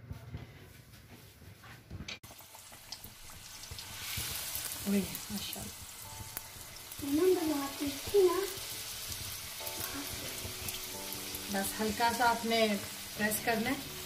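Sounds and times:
food sizzling in hot oil: 2.2s - 14.0s.

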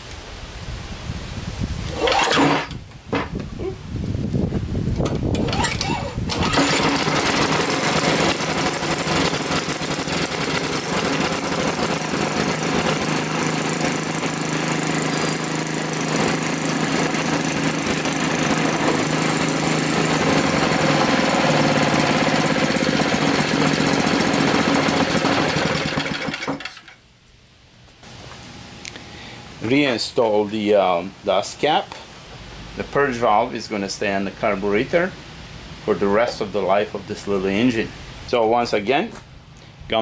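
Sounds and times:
snowblower engine running: 5.4s - 26.8s.

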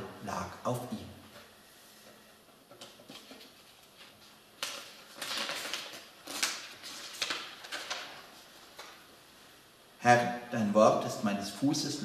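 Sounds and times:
paper sheets rustling: 2.7s - 9.0s.

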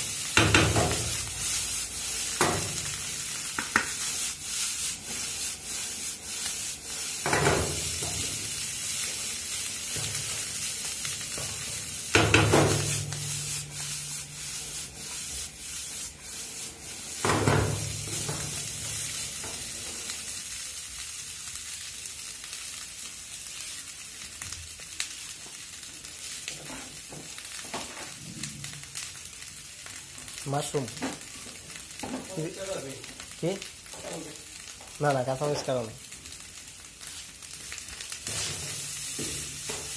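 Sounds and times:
rice sizzling in a frying pan: 0.0s - 39.9s
wooden spatula scraping a pan: 0.4s - 19.8s, 38.2s - 39.9s.

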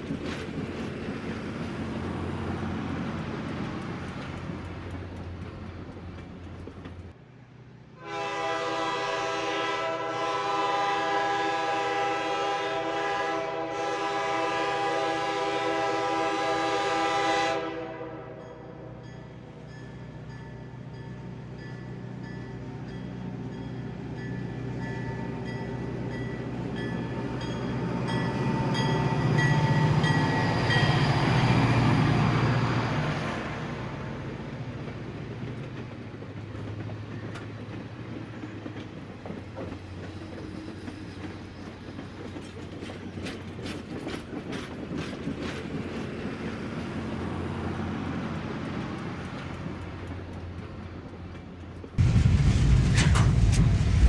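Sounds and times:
freight car wheels rattling on track: 34.8s - 46.8s.

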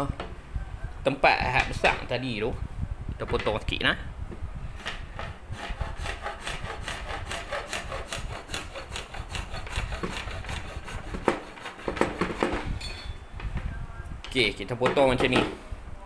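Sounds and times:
hacksaw cutting plastic pipe: 4.8s - 12.6s.

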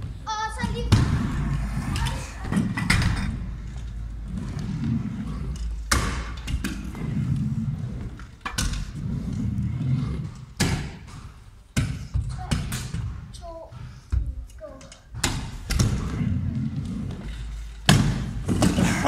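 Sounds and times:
scooter wheels rolling on plywood: 0.0s - 19.0s
scooter thumping on ramps: 0.4s - 3.4s, 17.2s - 19.0s.

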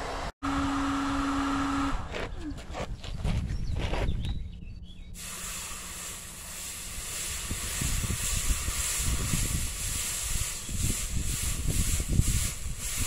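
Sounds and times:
hot steel hissing in water: 5.2s - 13.0s.

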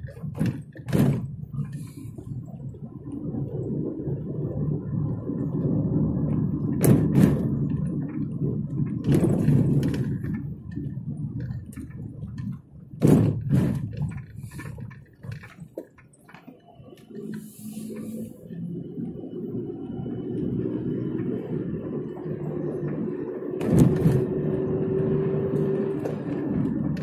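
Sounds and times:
car engine and tyres rumbling: 0.0s - 27.0s
sharp knocks: 13.0s - 14.3s.

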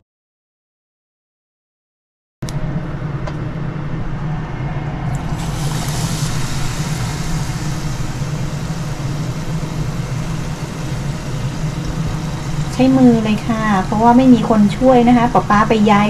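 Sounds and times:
low mechanical hum: 2.4s - 16.0s
shrimp sizzling in hot oil: 5.2s - 16.0s.

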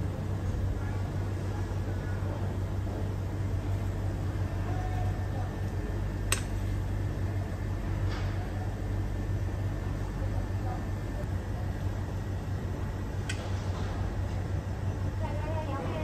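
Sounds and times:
low machine hum: 0.0s - 16.0s
sharp click: 6.3s - 6.6s.

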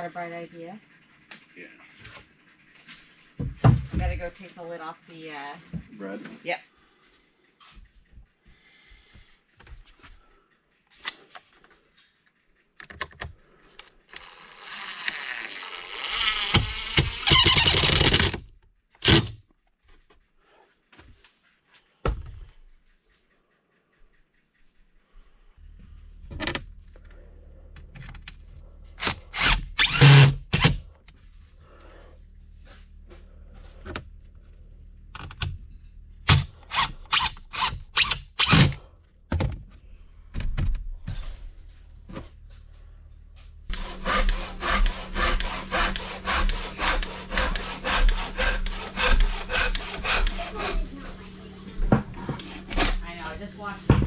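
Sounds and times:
impact driver driving screws: 14.1s - 19.4s, 29.0s - 30.8s, 36.3s - 38.8s
handsaw cutting wooden board: 14.4s - 18.4s, 29.0s - 30.8s, 43.7s - 53.8s
low hum: 24.1s - 54.0s.

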